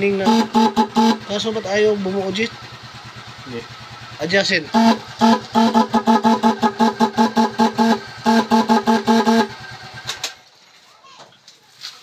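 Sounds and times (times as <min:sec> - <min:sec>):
electric horn short blasts: 0:00.0 - 0:02.1, 0:04.7 - 0:10.0.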